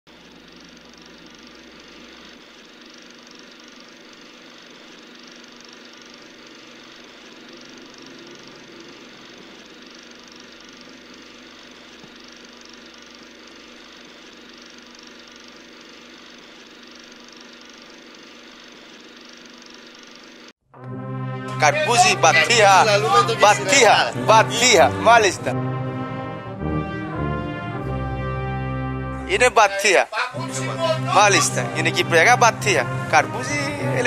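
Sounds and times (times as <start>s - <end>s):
faint hum: 0.1s - 20.5s
mechanical whirr with hiss: 0.4s - 20.5s.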